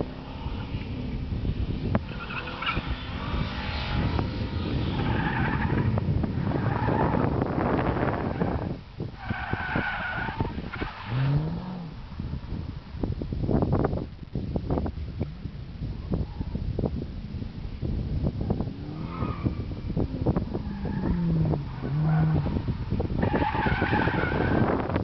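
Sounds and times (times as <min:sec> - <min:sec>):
car engine rumbling: 0:00.0 - 0:25.0.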